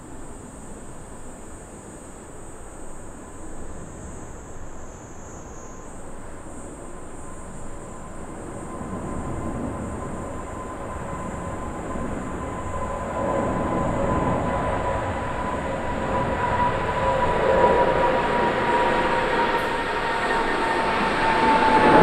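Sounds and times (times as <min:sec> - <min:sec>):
jet engine roar with whine: 0:00.0 - 0:22.0.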